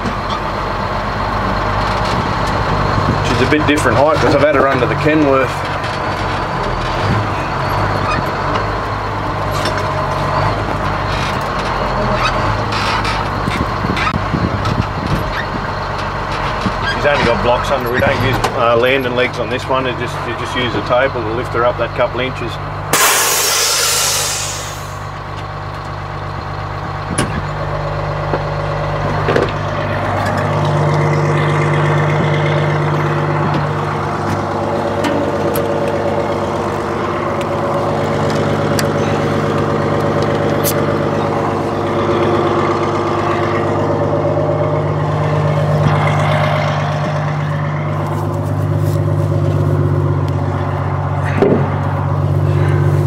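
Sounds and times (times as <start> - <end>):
diesel truck engine idling: 0.0 - 53.0.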